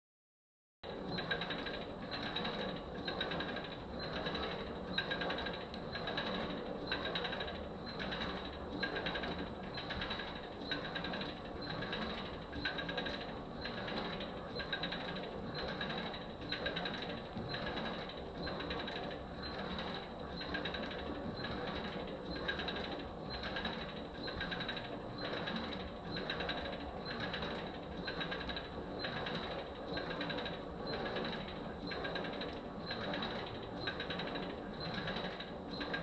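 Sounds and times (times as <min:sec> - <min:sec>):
flywheel whirring: 0:00.9 - 0:36.0.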